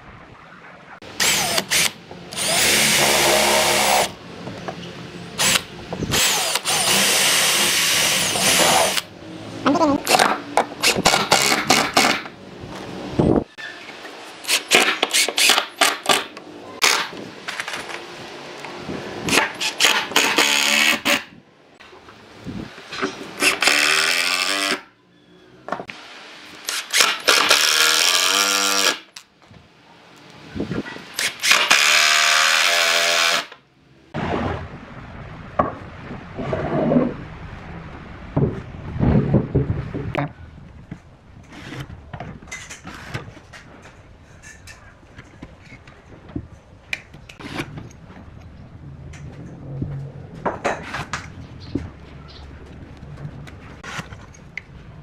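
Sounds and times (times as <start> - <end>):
impact driver driving screws: 31.2 - 33.6.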